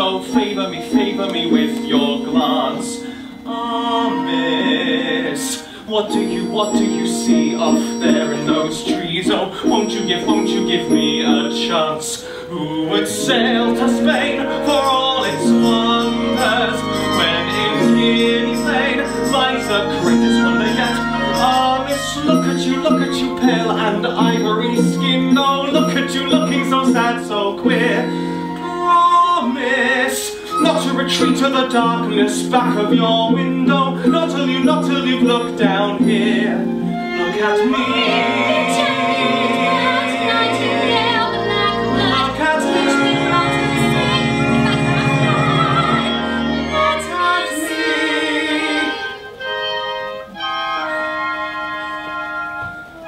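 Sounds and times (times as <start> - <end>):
held instrumental chords: 0.0 - 29.3, 30.3 - 53.0
singers holding notes with vibrato: 0.0 - 53.0
live band playing: 13.4 - 28.8, 39.9 - 47.5.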